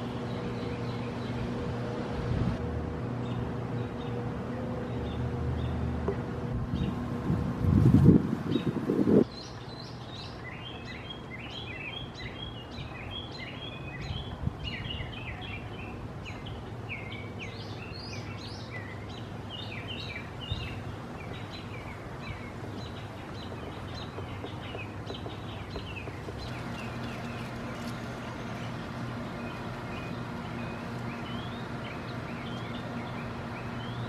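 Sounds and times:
small birds chirping: 0.0 - 2.0, 3.1 - 34.0
steady low hum: 0.0 - 34.0.

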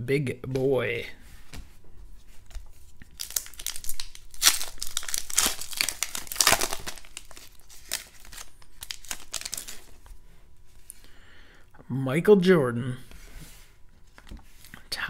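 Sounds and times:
foil pack tearing and crinkling: 3.2 - 10.0.

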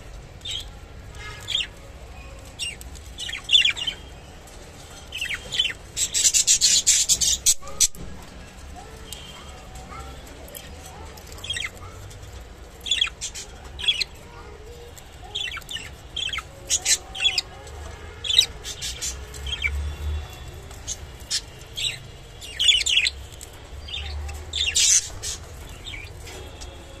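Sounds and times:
budgerigars chirping: 20.9 - 23.3.

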